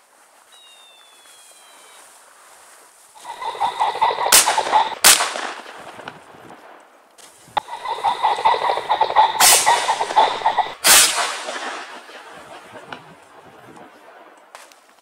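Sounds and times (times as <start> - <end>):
rapid rattling noise: 3.2 - 6.2, 7.6 - 13.9
shotgun shots: 3.3 - 6.7, 7.6 - 14.5.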